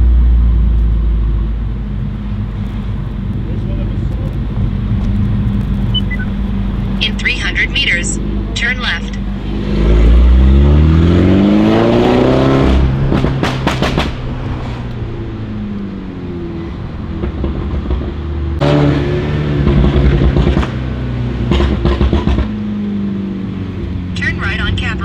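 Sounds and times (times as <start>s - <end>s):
car engine accelerating: 0.0s - 25.0s
exhaust pops and crackles: 2.5s - 6.0s, 13.0s - 15.0s, 21.4s - 22.5s.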